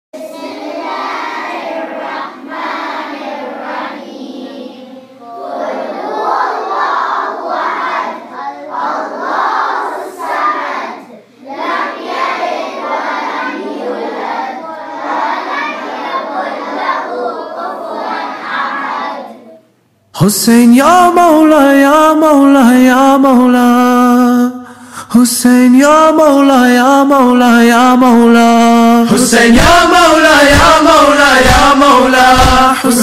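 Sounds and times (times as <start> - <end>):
children chanting and shouting: 0.2 - 19.7, 29.1 - 33.0.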